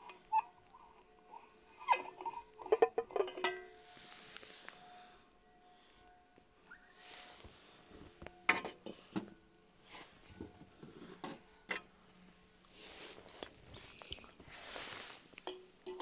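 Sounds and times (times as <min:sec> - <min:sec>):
soft rustling: 0:03.7 - 0:05.2, 0:06.9 - 0:09.2, 0:12.2 - 0:16.0.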